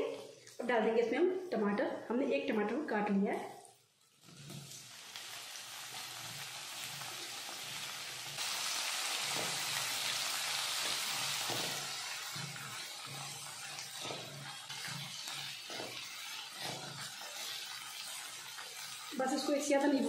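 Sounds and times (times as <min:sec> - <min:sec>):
tomato sizzling in hot oil: 0:03.6 - 0:20.0
spatula stirring: 0:09.2 - 0:20.0.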